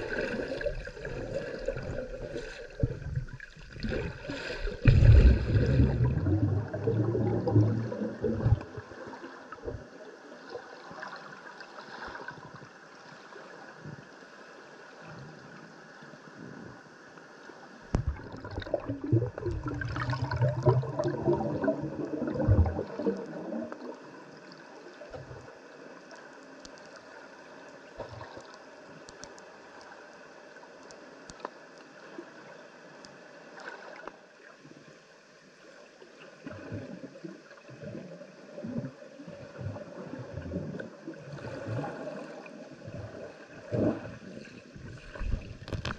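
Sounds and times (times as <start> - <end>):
churning water with low rumbling: 0.0 - 45.9
light crackles: 26.0 - 27.2, 28.0 - 29.9.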